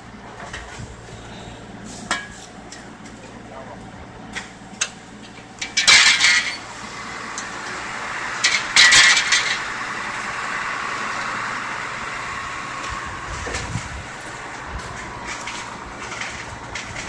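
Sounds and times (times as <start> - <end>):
construction machinery running: 0.0 - 17.0
loud metallic clanks: 5.6 - 6.7, 8.4 - 9.7.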